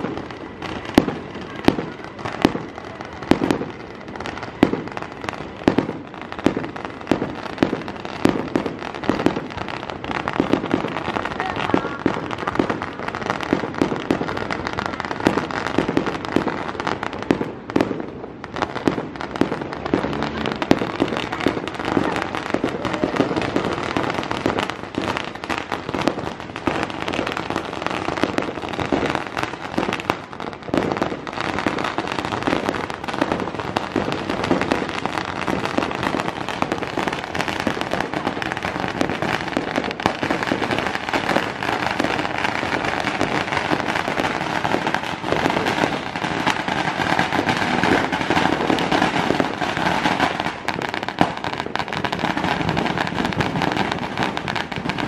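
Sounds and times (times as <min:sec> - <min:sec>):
fireworks bangs and crackling: 0:00.0 - 0:55.0.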